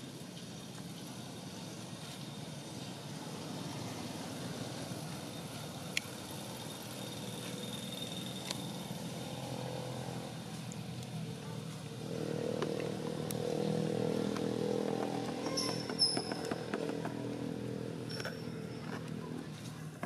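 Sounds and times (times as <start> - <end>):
motor engine running: 8.2 - 20.0.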